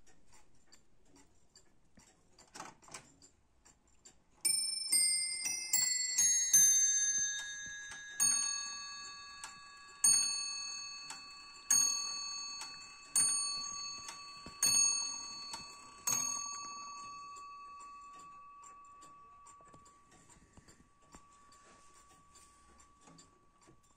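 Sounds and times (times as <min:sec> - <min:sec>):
clock ticking faintly: 0:00.0 - 0:23.9
clock striking on bell: 0:04.5 - 0:19.9.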